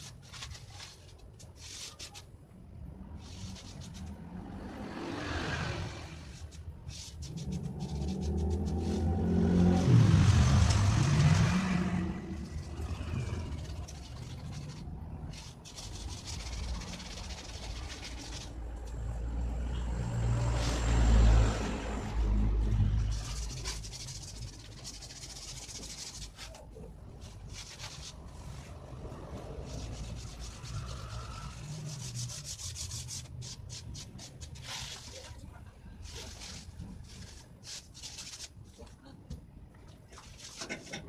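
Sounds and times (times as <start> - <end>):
low engine rumble: 2.5 - 32.4
vehicle engine passing by: 2.9 - 25.7, 26.8 - 34.7.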